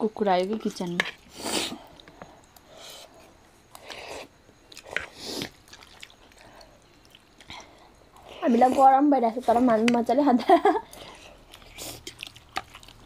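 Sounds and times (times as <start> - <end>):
people chewing noodles: 1.2 - 8.9, 10.8 - 13.0.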